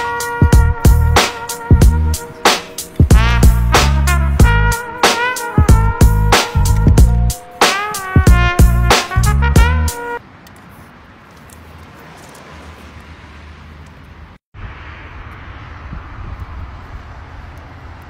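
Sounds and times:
music track: 0:00.0 - 0:10.2
distant road traffic rumble: 0:00.0 - 0:18.0.

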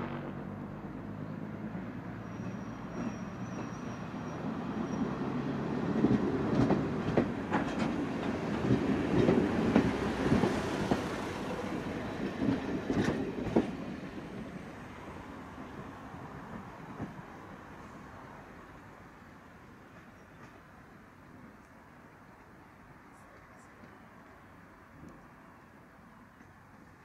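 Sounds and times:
diesel train engines: 0:00.0 - 0:27.0
train wheels clacking over rail joints: 0:05.8 - 0:14.4.

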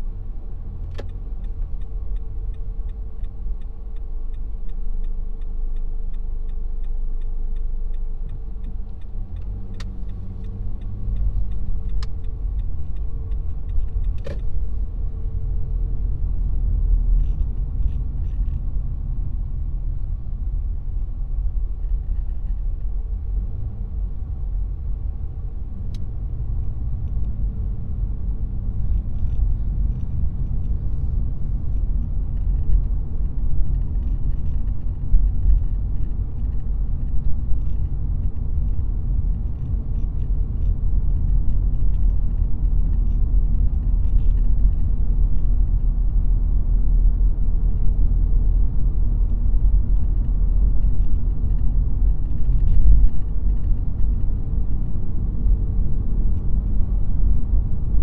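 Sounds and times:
car engine and road rumble: 0:00.0 - 0:58.0
light even ticking: 0:00.8 - 0:15.1.

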